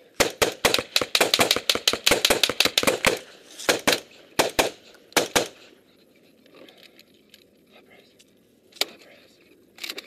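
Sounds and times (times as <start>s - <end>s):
rifle shots: 0.2s - 5.7s.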